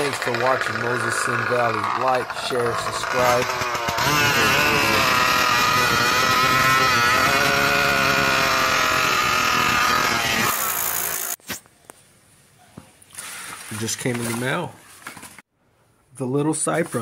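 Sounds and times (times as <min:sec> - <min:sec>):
small engine running: 0:00.0 - 0:11.4.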